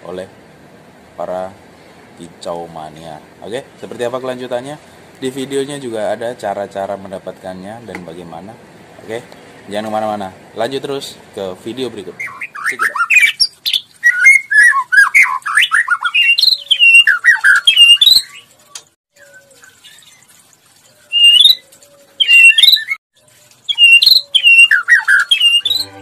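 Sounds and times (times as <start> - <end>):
bird singing whistled phrases: 12.2 - 18.5, 21.1 - 21.6, 22.2 - 23.0, 23.7 - 26.0.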